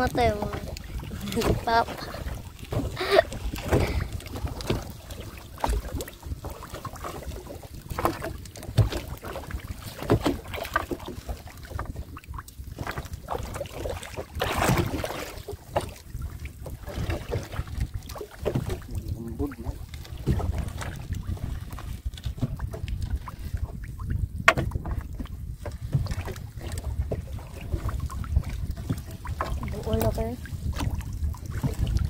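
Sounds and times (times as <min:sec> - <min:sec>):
water splashing around boat: 0:00.0 - 0:32.0
wind rumbling on microphone: 0:00.0 - 0:32.0.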